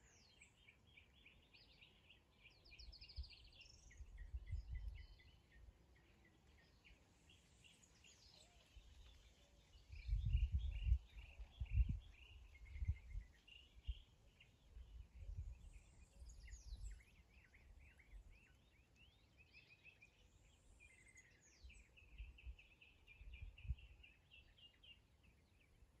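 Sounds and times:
birds chirping and trilling: 0:00.0 - 0:25.8
wind rumbling on microphone: 0:02.7 - 0:05.3, 0:08.8 - 0:14.1, 0:14.7 - 0:17.2, 0:21.6 - 0:24.1.

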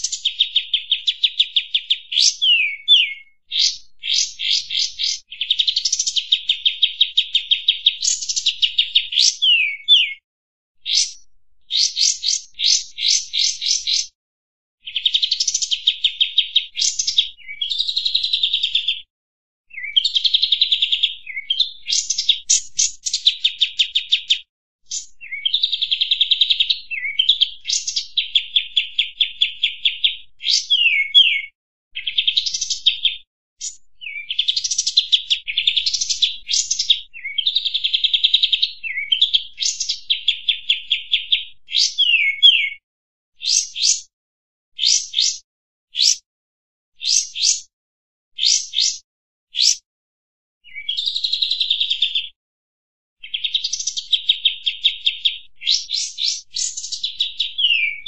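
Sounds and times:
bulbul singing trilled phrases: 0:00.0 - 0:10.2, 0:10.9 - 0:14.2, 0:19.7 - 0:37.8, 0:43.4 - 0:44.1, 0:44.8 - 0:45.4, 0:47.0 - 0:47.7, 0:48.4 - 0:49.0, 0:49.6 - 0:49.8.

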